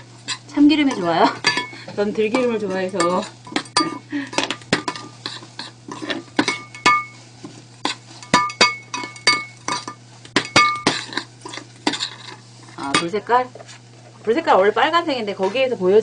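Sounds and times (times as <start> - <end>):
utensil clinking against metal pot: 0.3 - 7.2, 7.8 - 13.2.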